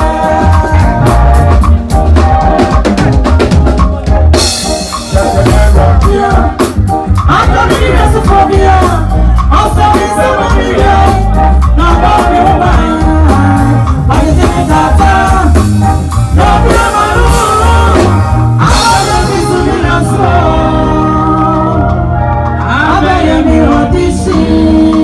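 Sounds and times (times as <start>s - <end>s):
drum kit: 0.0s - 25.0s
woman singing through microphone: 5.8s - 15.6s, 16.4s - 22.0s, 22.7s - 25.0s.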